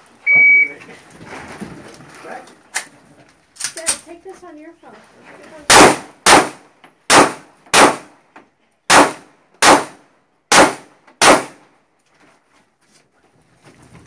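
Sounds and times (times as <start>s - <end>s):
pistol shots: 5.7s - 8.2s, 8.9s - 11.6s.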